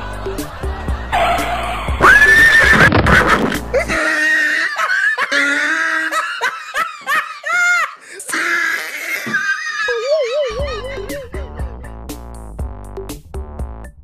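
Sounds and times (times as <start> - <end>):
horse whinnying: 2.0 - 3.6.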